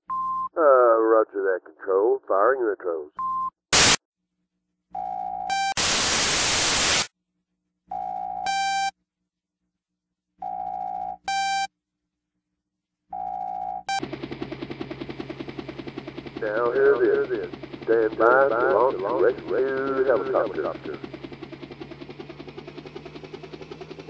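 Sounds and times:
static burst: 0:03.7 - 0:04.0, 0:05.8 - 0:07.1
pulsing low hum: 0:13.9 - 0:24.0.

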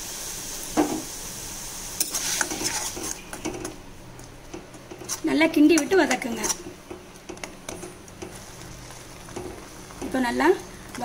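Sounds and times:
faint sizzle of paste: 0:00.0 - 0:11.0
metal spoon scraping a pan: 0:02.0 - 0:03.8, 0:04.5 - 0:10.2.

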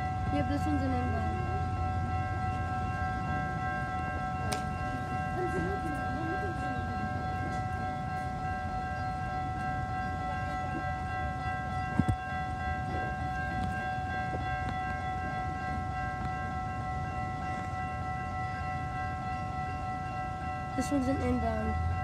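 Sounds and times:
crossing warning bell ringing: 0:00.0 - 0:22.0
train rumble: 0:00.0 - 0:22.0.

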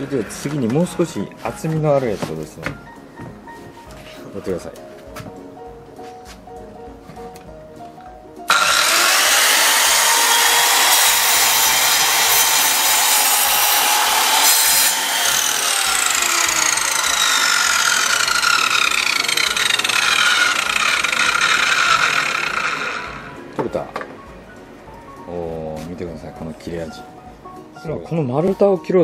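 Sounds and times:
miter saw cutting wood: 0:08.5 - 0:23.4.

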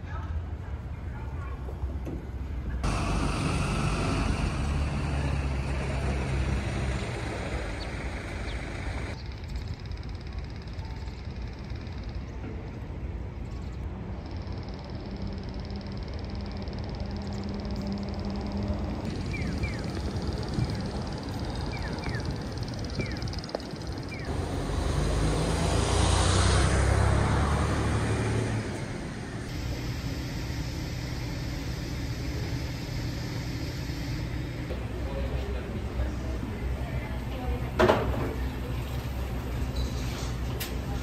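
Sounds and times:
street ambience: 0:00.0 - 0:41.0
bird chirps: 0:19.2 - 0:24.3
car driving past: 0:24.3 - 0:29.5.

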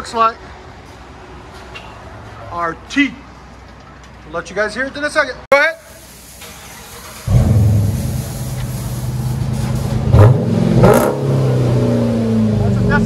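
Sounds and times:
car engine revving: 0:06.8 - 0:13.0.

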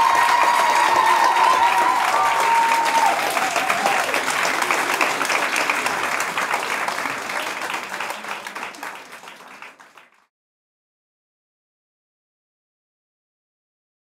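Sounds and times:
drawn-out cheers: 0:00.0 - 0:04.2
audience applauding: 0:00.0 - 0:10.3.

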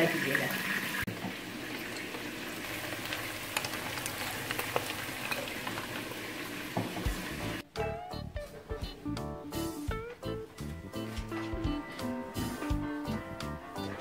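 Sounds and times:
meat sizzling in hot oil: 0:00.0 - 0:07.6
oil popping and crackling: 0:01.0 - 0:07.6.

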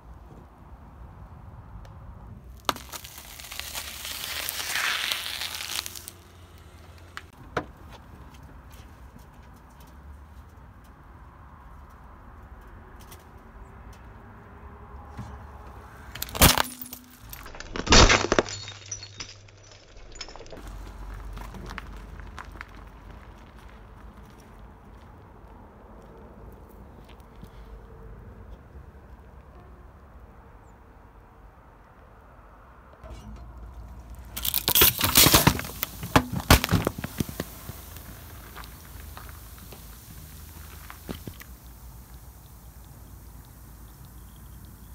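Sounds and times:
car tyre rumbling: 0:01.7 - 0:10.7, 0:15.0 - 0:25.0, 0:33.0 - 0:44.9
glass shards crackling: 0:02.7 - 0:06.2, 0:16.1 - 0:20.6, 0:34.1 - 0:39.7
glass jar shattering: 0:16.1 - 0:20.6, 0:34.4 - 0:37.4.

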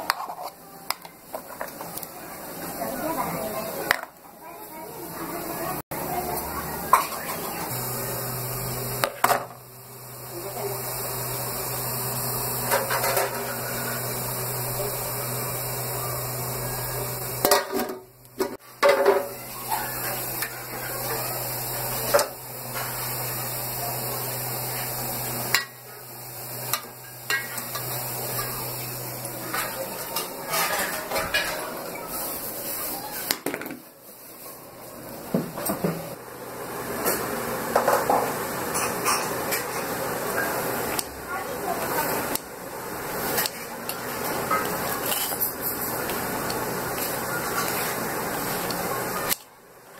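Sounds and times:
steel pots and plates clinking: 0:26.7 - 0:28.6, 0:29.5 - 0:31.8.

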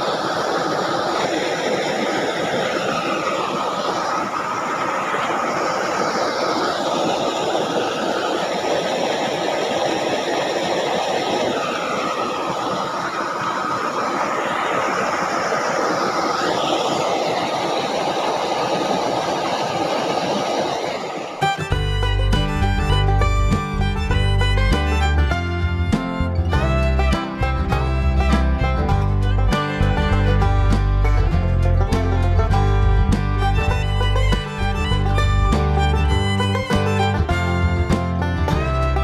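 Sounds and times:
water rushing along a ditch: 0:00.0 - 0:39.0.

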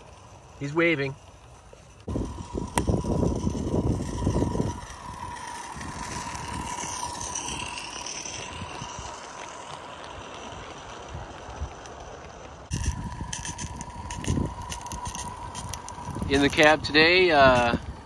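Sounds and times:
low rumbling: 0:00.0 - 0:18.0
steam locomotive hissing: 0:02.0 - 0:10.8.

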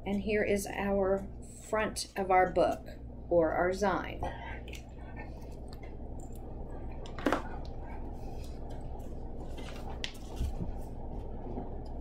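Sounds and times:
low room hum: 0:00.0 - 0:12.0
paper handled on a desk: 0:09.4 - 0:10.9.

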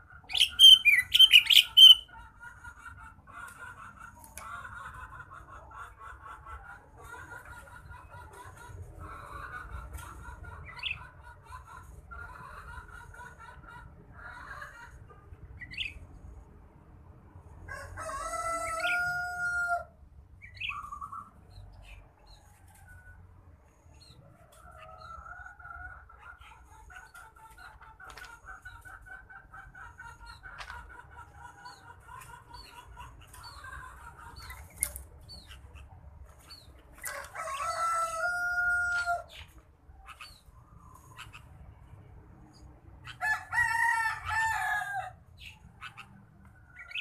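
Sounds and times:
bird chirps: 0:00.3 - 0:02.1
rooster crowing: 0:17.7 - 0:19.9, 0:37.0 - 0:39.3, 0:43.1 - 0:45.2.

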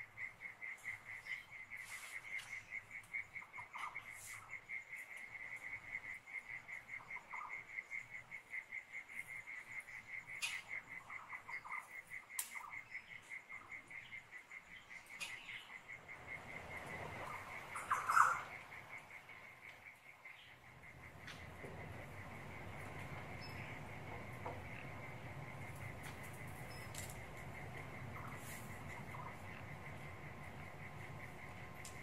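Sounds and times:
cricket trilling: 0:00.0 - 0:32.0
animal calls chirping: 0:17.2 - 0:18.6.

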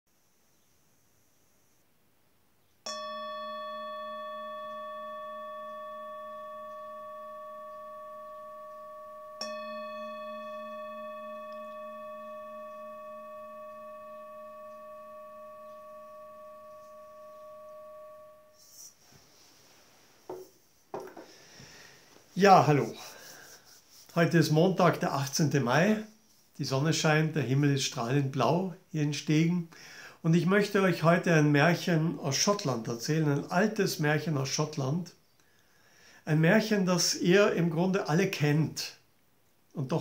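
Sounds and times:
singing bowl ringing: 0:02.9 - 0:18.9.

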